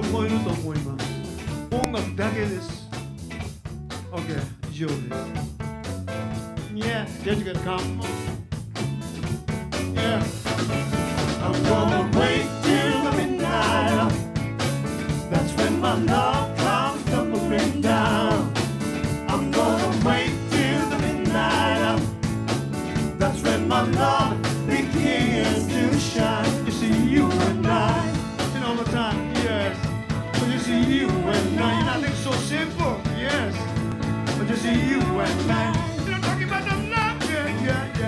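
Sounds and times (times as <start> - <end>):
live band playing upbeat groove: 0.0 - 38.0
person singing: 11.4 - 14.2, 15.3 - 18.6, 19.3 - 22.1, 23.1 - 33.6.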